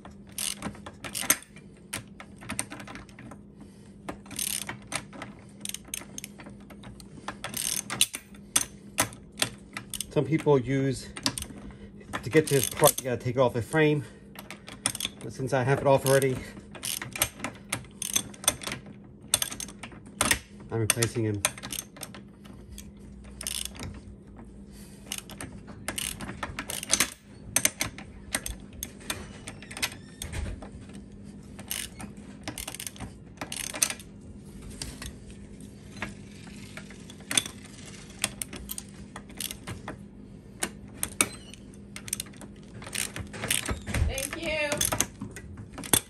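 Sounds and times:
socket ratchet clicking: 0.2 - 3.2, 4.1 - 10.5, 12.3 - 13.2, 14.4 - 15.2, 16.0 - 24.0, 25.0 - 30.3, 31.6 - 34.1, 36.1 - 40.0, 40.6 - 46.0.

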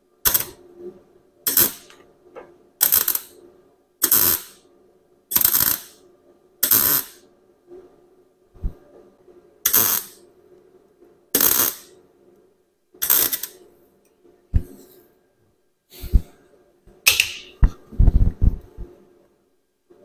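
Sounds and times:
crackling tack welds: 0.2 - 0.6, 1.5 - 2.0, 2.8 - 3.4, 4.0 - 4.6, 5.3 - 6.0, 6.6 - 7.2, 9.7 - 10.2, 11.4 - 11.9, 13.0 - 13.6.

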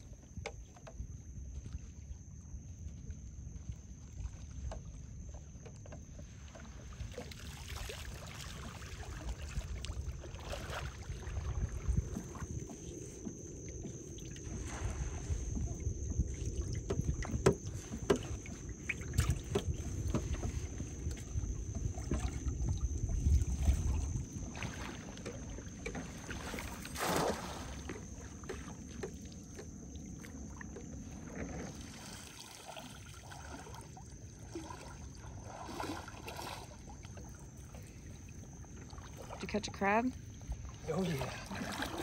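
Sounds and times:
shallow water sloshing: 0.0 - 42.0
net splashing into water: 6.7 - 12.4, 23.5 - 28.7, 31.2 - 37.4, 40.8 - 42.0.

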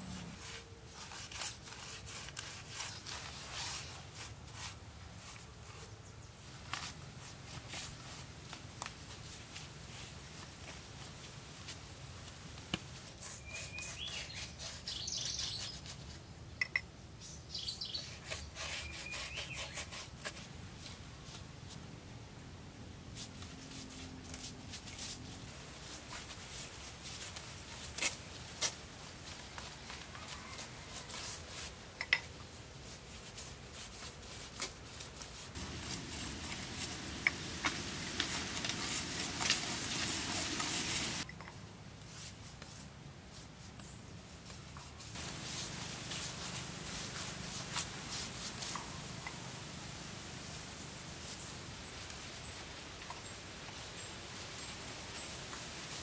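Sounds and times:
paintbrush scrubbing concrete: 0.2 - 5.6, 13.0 - 16.1, 17.8 - 20.5, 23.2 - 32.3, 32.9 - 41.3, 45.0 - 51.8.

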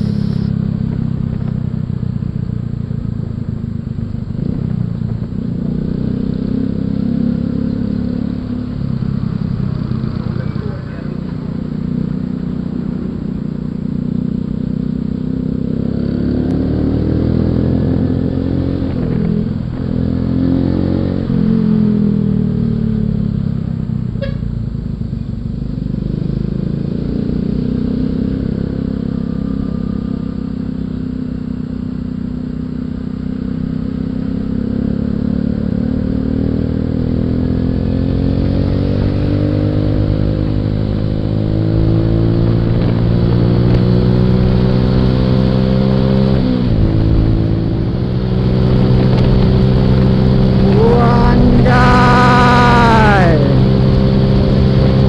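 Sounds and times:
motorcycle engine running: 0.0 - 17.1, 46.8 - 52.8.

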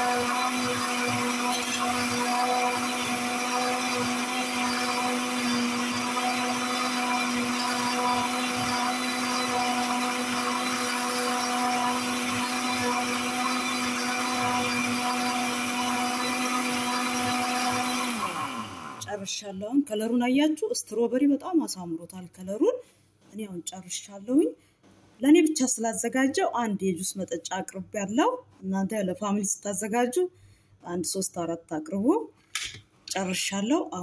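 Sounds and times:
blender motor hum: 0.0 - 19.1.

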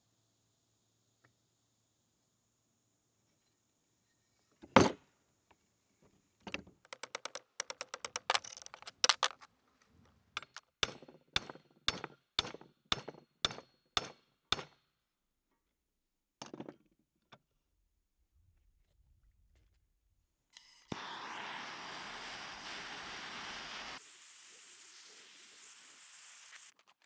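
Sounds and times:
rattle of clicks: 6.5 - 9.5.

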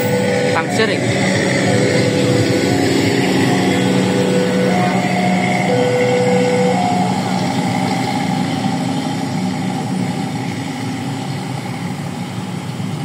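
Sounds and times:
two-tone electronic signal: 0.0 - 9.2
heavy engine running: 0.0 - 13.0.

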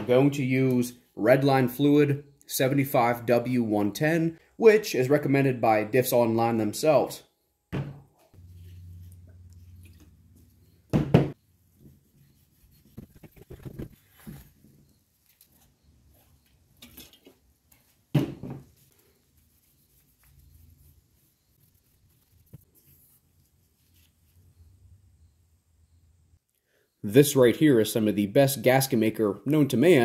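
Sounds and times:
soft handling noises: 8.2 - 24.5
low hum: 8.4 - 11.7
parts knocking on bench: 10.9 - 11.4
cloth wiping metal: 11.6 - 16.7, 17.4 - 24.4.

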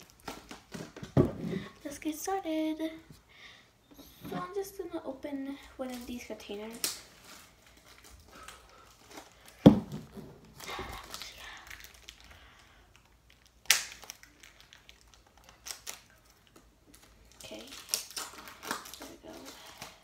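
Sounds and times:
plastic crinkling: 5.8 - 20.0.

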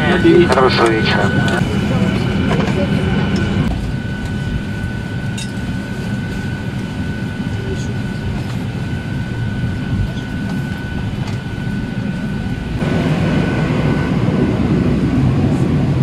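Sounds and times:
thin high whine: 0.0 - 1.6
aircraft cabin low rumble: 0.0 - 16.0.

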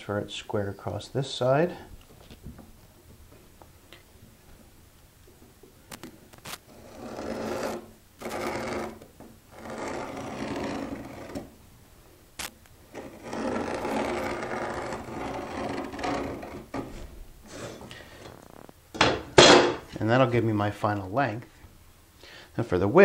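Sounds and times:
marking tool scratching wood: 6.7 - 11.5, 12.9 - 17.9.

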